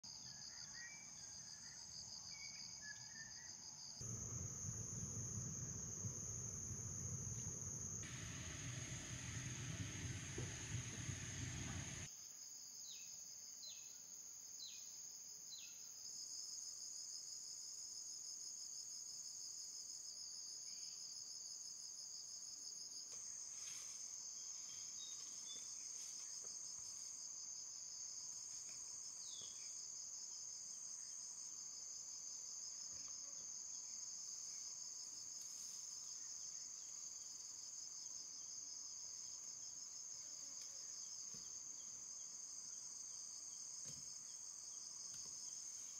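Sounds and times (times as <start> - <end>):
insects trilling: 0.1 - 12.1.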